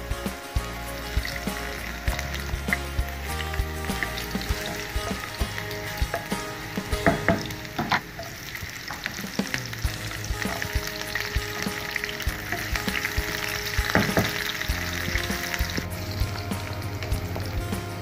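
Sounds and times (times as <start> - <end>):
oil sizzling in a frying pan: 0.6 - 18.0
wooden spatula knocking: 4.4 - 9.5, 10.4 - 15.9.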